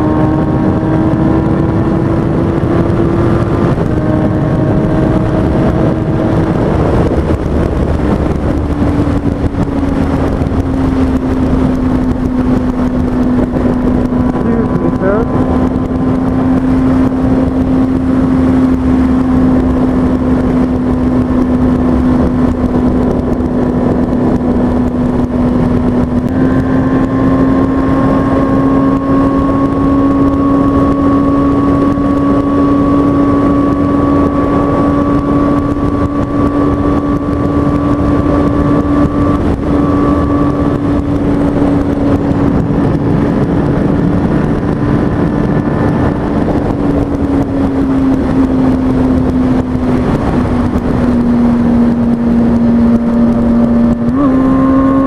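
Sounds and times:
motorcycle engine at high revs: 0.0 - 55.0
wind and road rush: 0.0 - 55.0.

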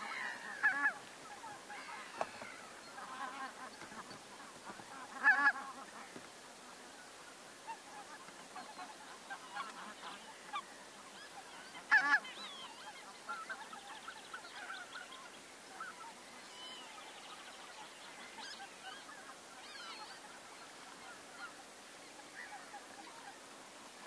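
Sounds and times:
waterfowl loud short calls: 0.0 - 6.1, 7.7 - 15.1
soft bird calls: 0.0 - 24.0.

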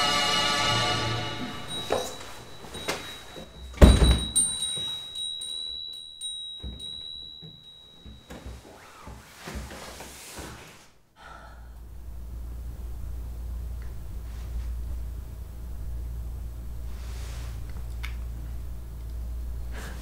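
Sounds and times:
thin high steady tone: 1.2 - 8.8
front door shutting: 1.3 - 5.2
faint knocks and rustles: 1.7 - 10.9.

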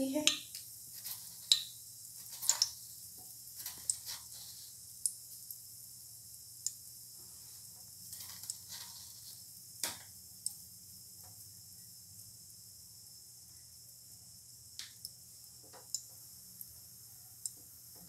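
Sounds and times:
oil sizzling: 0.0 - 18.0.

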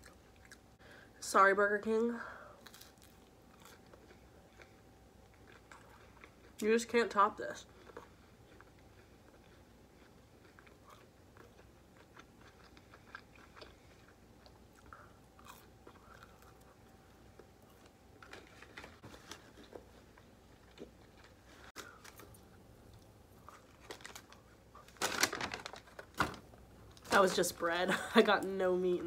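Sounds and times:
chewing: 2.6 - 6.6, 7.6 - 18.9.

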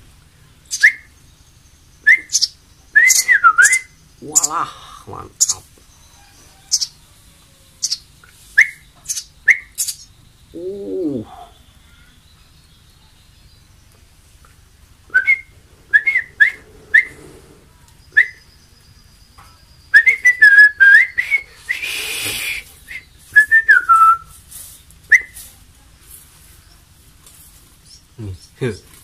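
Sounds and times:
person whistling chirping notes: 2.1 - 3.9, 15.1 - 17.1, 18.2 - 18.4, 19.9 - 24.3
brief rushing hiss: 15.3 - 18.3, 21.2 - 23.0.

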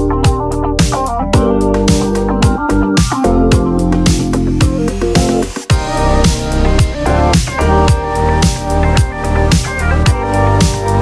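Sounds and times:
deep kick drum beat: 0.0 - 11.0
sustained synth chords: 0.0 - 11.0.

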